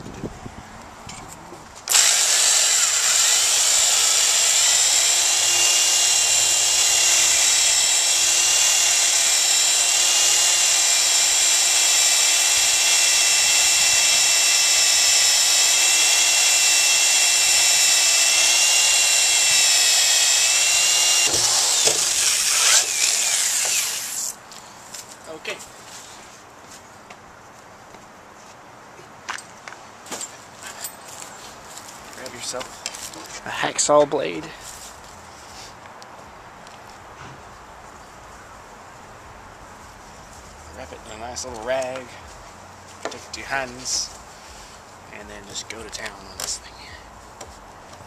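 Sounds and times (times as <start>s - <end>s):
power drill boring through plastic: 1.9s - 24.3s.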